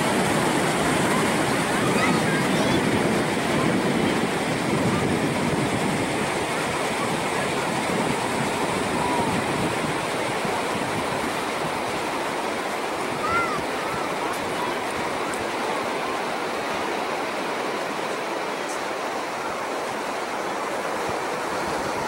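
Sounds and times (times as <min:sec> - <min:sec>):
surf breaking on a beach: 0:00.0 - 0:22.0.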